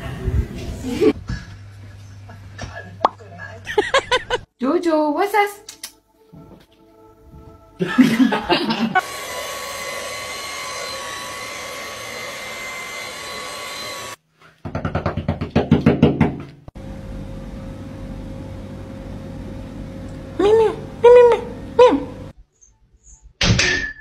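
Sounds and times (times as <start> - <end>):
stick vacuum cleaner whining: 9.0 - 14.2
knocking on glass door: 14.6 - 16.5.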